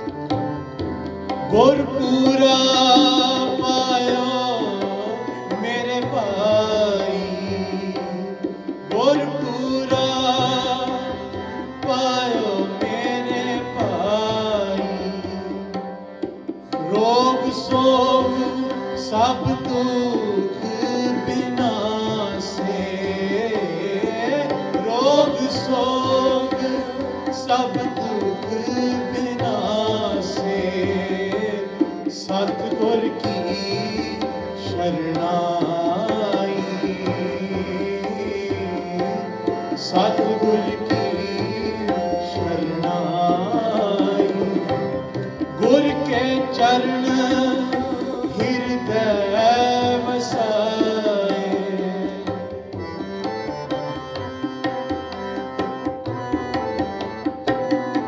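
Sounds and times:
harmonium: 0:00.0 - 0:58.0
tabla rhythm: 0:00.0 - 0:58.0
person singing: 0:16.8 - 0:52.8.

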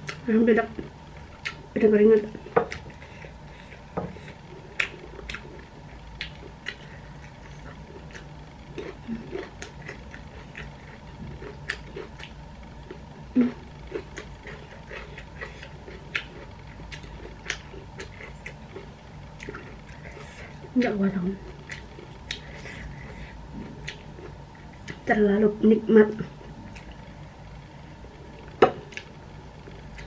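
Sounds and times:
faint steady hum: 0:00.0 - 0:30.0
chewing and lip smacks: 0:02.3 - 0:05.6, 0:06.2 - 0:13.0, 0:13.9 - 0:20.8, 0:21.4 - 0:25.1, 0:26.6 - 0:27.1.

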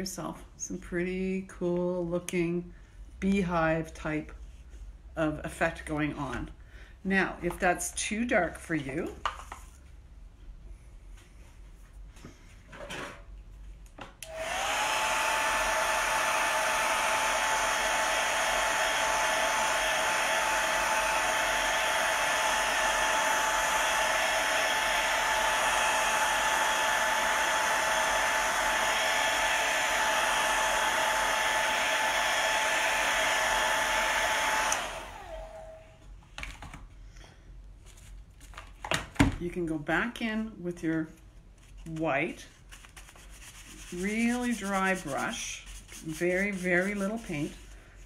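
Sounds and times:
hair dryer blowing with whine: 0:14.2 - 0:36.0.

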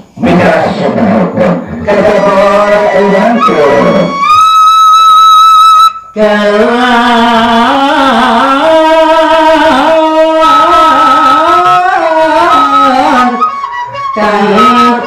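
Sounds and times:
man singing slowly: 0:00.1 - 0:04.2, 0:06.1 - 0:15.0
bamboo flute: 0:02.2 - 0:06.2, 0:10.4 - 0:15.0.

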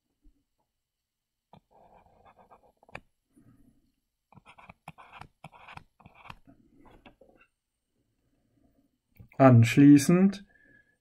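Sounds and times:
stylus scratching on tablet screen: 0:01.5 - 0:03.1, 0:04.3 - 0:07.4.

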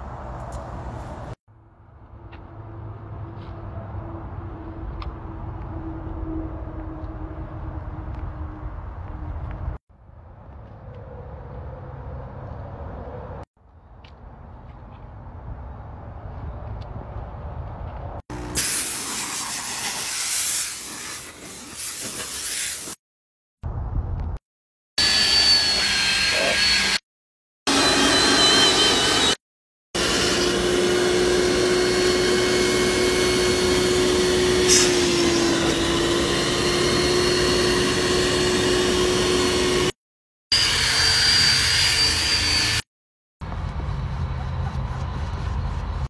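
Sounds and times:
vacuum motor whining: 0:27.7 - 0:29.4, 0:30.0 - 0:39.9.

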